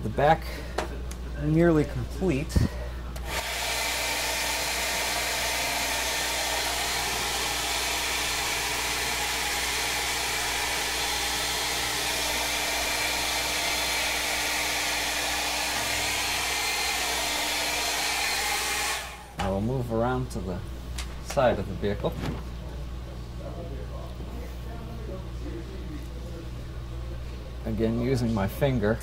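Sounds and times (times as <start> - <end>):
hair dryer running: 3.2 - 19.4.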